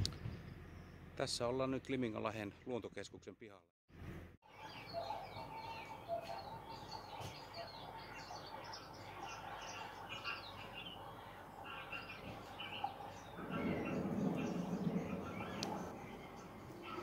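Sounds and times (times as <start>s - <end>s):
small birds chirping: 4.5s - 17.0s.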